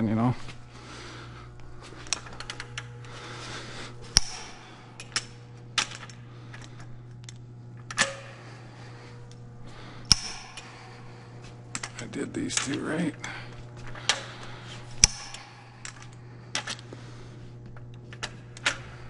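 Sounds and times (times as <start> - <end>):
torque wrench clicking: 15.0 - 16.8.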